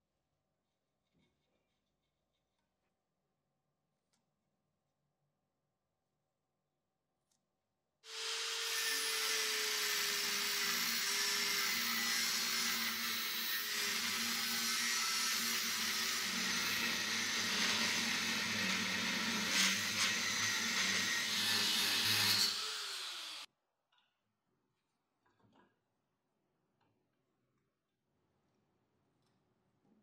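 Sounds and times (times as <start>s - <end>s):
angle grinder grinding metal: 8.1s - 23.5s.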